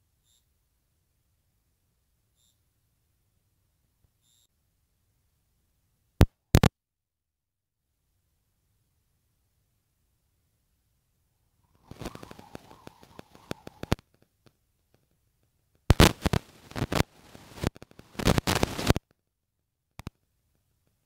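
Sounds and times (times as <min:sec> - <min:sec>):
crackling clicking on phone microphone: 0:06.2 - 0:06.7, 0:11.7 - 0:19.2, 0:20.0 - 0:21.0.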